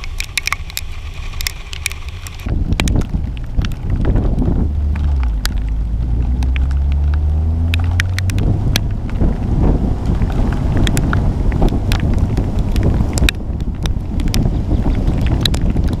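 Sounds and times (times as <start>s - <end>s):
sharp ticks: 0.0s - 3.8s, 7.6s - 8.9s, 10.3s - 16.0s
wind and road noise: 0.0s - 16.0s
vehicle engine accelerating: 3.4s - 16.0s.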